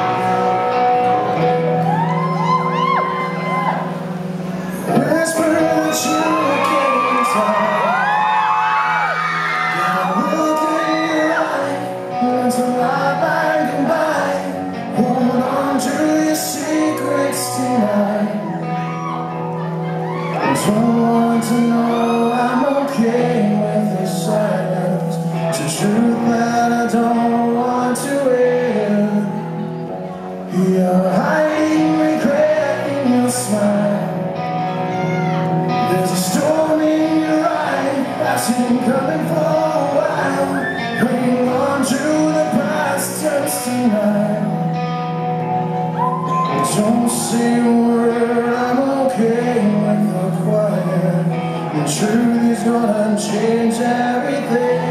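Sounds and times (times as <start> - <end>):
live rock band playing: 0.0 - 54.9
audience shouting and whooping: 0.2 - 4.2, 5.4 - 11.8, 18.2 - 22.8, 34.6 - 35.8, 39.7 - 41.5, 45.4 - 48.5, 54.2 - 54.9
man singing into microphone: 4.7 - 19.1, 20.2 - 34.9, 35.6 - 45.2, 46.0 - 54.9.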